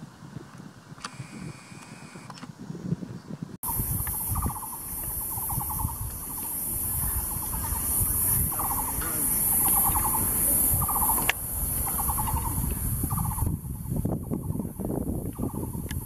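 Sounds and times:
steady high hiss: 3.6s - 13.7s.

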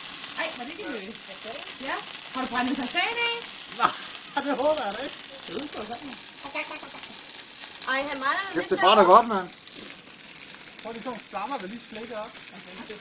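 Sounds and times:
sharp pop from fire: 0.0s - 8.7s, 9.5s - 13.0s
fire crackling and hissing: 0.0s - 13.0s
people talking indistinctly: 0.4s - 10.0s, 10.8s - 13.0s.

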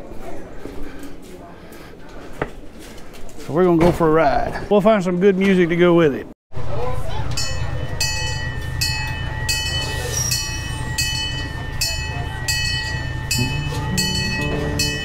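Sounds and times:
locomotive engine rumbling: 6.6s - 15.0s
locomotive bell ringing: 7.0s - 15.0s
background music: 13.3s - 15.0s.

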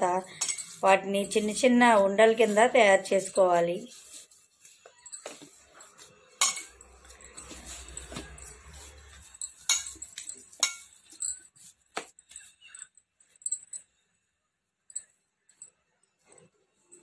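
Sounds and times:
bangles clinking: 0.0s - 14.2s, 14.8s - 17.0s
hands kneading dough in a pan: 0.8s - 12.6s.

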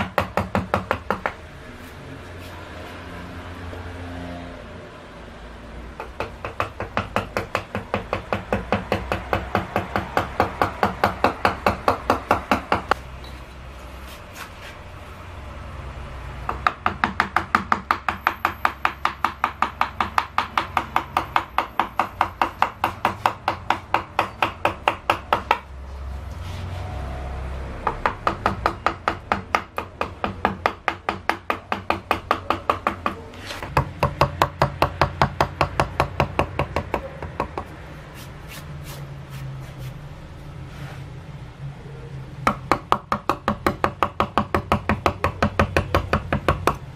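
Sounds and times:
mallet striking gouge into wood: 0.0s - 1.4s, 6.0s - 13.0s, 16.5s - 25.7s, 27.8s - 37.7s, 42.4s - 46.9s.

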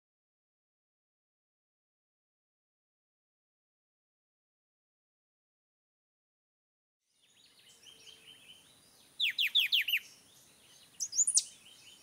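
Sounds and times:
faint bird chirps: 7.1s - 12.0s
songbird calling: 7.1s - 12.0s.

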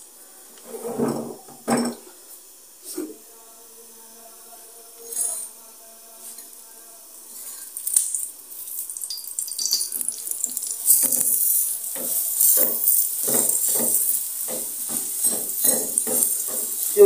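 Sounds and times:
flatbread sizzling on hot griddle: 0.5s - 3.1s, 5.0s - 17.0s.

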